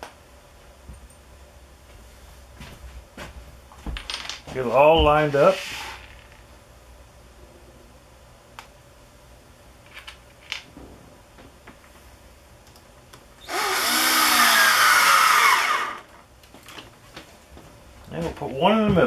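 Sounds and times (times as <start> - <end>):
cordless drill driving screw: 13.4 - 16.1.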